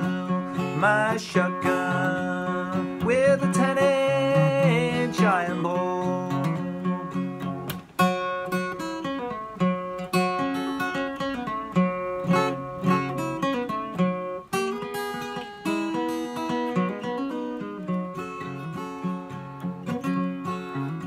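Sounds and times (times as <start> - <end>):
acoustic guitar playing: 0.0 - 21.0.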